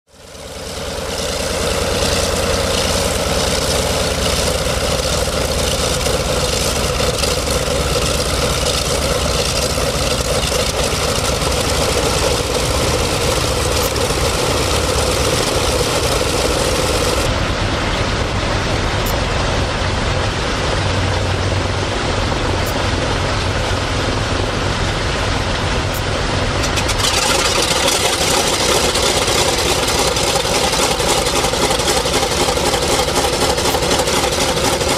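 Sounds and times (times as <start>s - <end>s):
propeller noise: 0.1s - 34.9s
radial piston engines rumbling: 0.2s - 17.3s, 25.7s - 34.9s.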